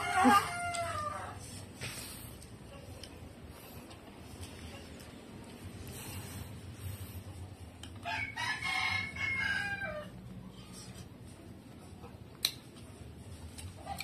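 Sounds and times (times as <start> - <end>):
rooster crowing: 0.0 - 1.6, 8.0 - 10.3.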